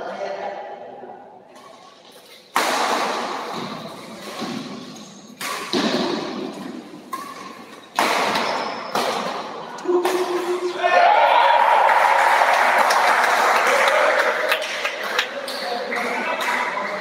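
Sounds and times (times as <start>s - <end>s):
rackets hitting shuttlecock: 2.5s - 10.8s.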